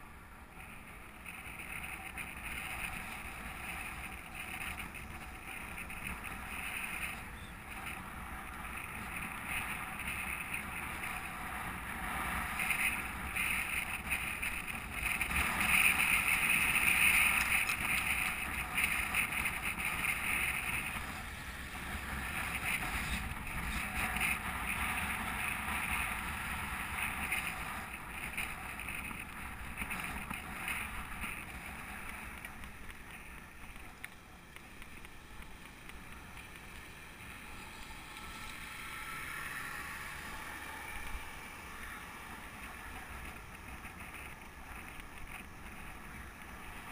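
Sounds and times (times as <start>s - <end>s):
bicycle road noise: 0.0s - 46.9s
wind rushing over microphone: 0.6s - 34.0s.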